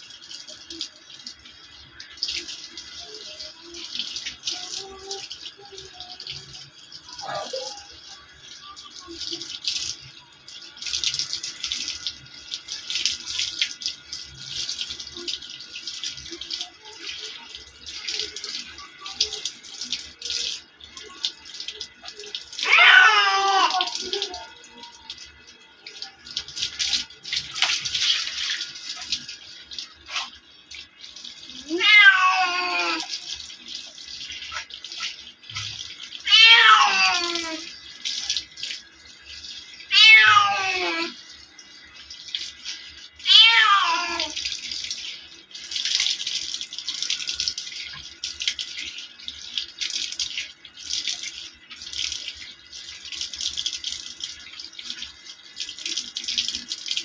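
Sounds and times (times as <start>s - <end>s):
water splashing and running: 0.0s - 57.0s
cat meowing loudly: 22.6s - 23.9s, 31.6s - 33.1s, 36.3s - 37.7s, 39.9s - 41.2s, 43.2s - 44.4s.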